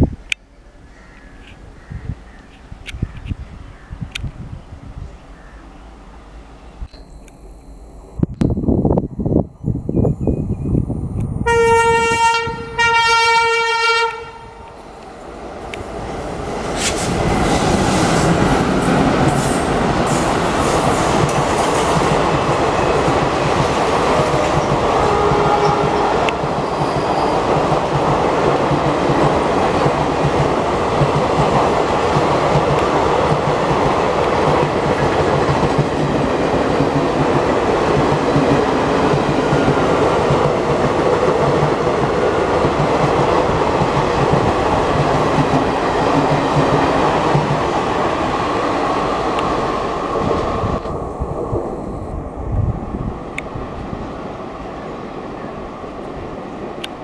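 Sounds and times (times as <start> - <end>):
train wheels clacking over rail joints: 16.7 - 47.7.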